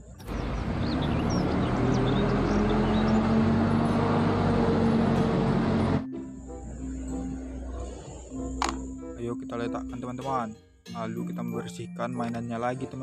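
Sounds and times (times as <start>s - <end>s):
bus diesel engine droning: 0.0s - 8.7s
traffic noise: 0.0s - 8.8s.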